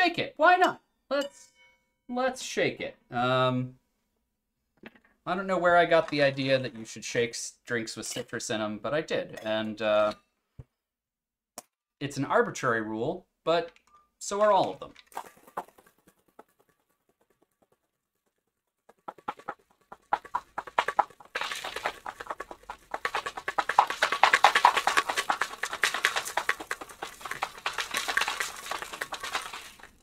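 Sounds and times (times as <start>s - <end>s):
ice rattling in cocktail shaker: 20.2s - 30.0s.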